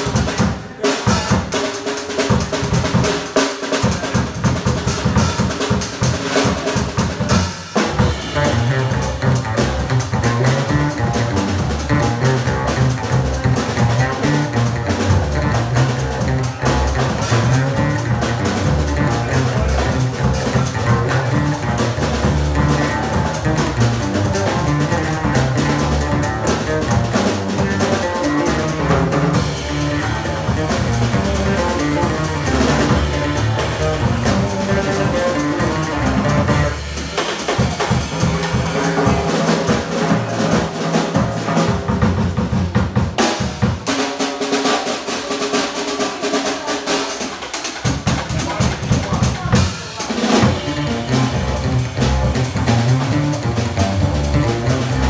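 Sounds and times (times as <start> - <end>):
drum kit: 0.0 - 55.0
upright bass: 4.1 - 43.7, 47.9 - 55.0.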